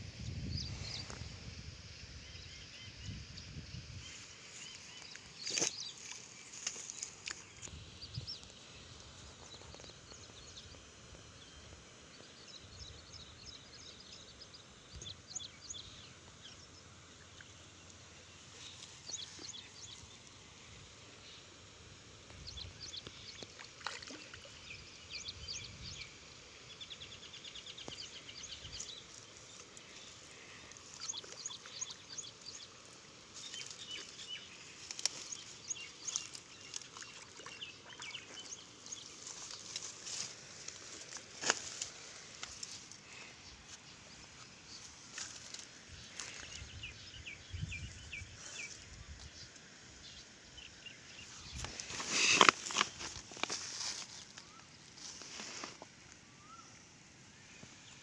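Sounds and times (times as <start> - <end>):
faint outdoor background: 0.0 - 58.0
birds chirping and twittering: 21.2 - 55.8.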